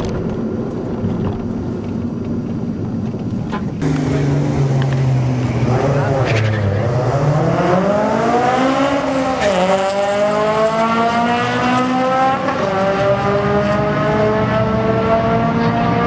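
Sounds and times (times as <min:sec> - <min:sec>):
drag racing car accelerating: 0:03.7 - 0:16.0.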